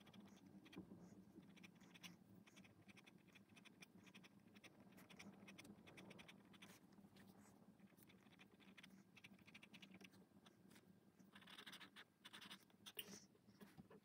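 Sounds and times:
pen scratching on paper: 0.0 - 13.7
faint low hum: 0.0 - 14.0.

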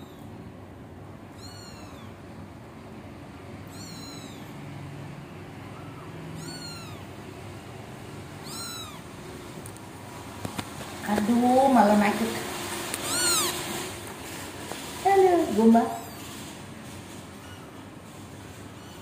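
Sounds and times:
kitten meowing: 0.0 - 0.4, 1.3 - 2.2, 3.6 - 4.7, 5.6 - 7.2, 8.4 - 9.2, 12.9 - 13.8, 15.9 - 16.4, 17.3 - 17.8, 18.7 - 19.0.

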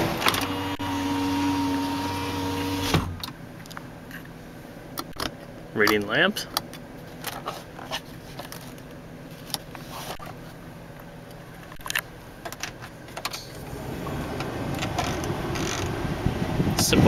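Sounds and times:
low cabin hum: 0.0 - 17.0.

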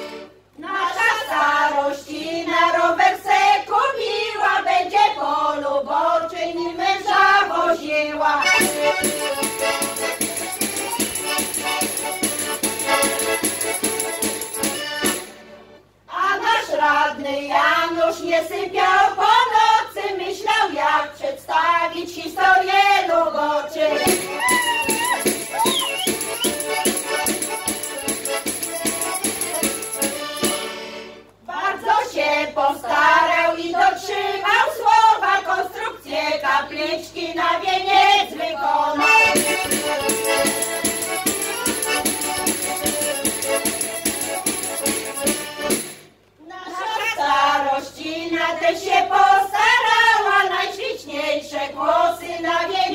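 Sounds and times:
women's group singing folk song: 0.0 - 15.4, 16.1 - 30.8, 31.4 - 52.9
instrumental folk music with beat: 8.4 - 15.9, 23.8 - 31.5, 39.0 - 46.4.

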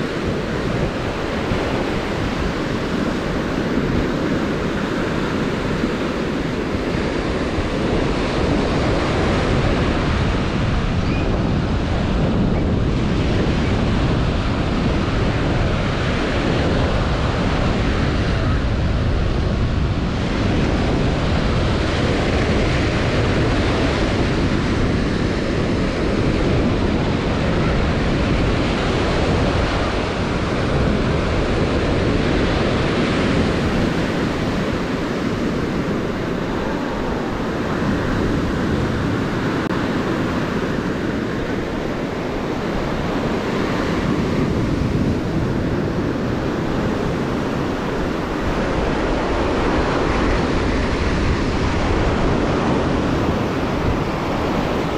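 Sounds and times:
surf washing up a beach: 0.0 - 54.9
wind buffeting the microphone: 0.0 - 54.9.

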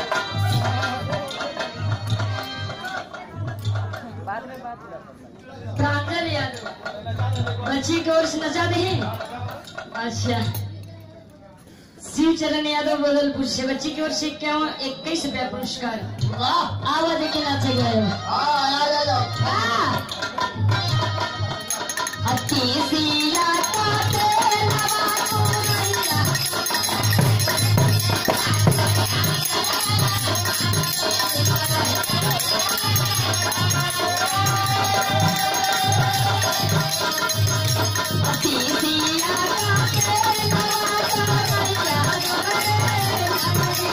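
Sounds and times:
rattling hand percussion: 0.0 - 4.8, 5.7 - 11.3, 16.0 - 43.9
woman singing through microphone: 12.0 - 43.9
drum beat: 19.5 - 43.9.

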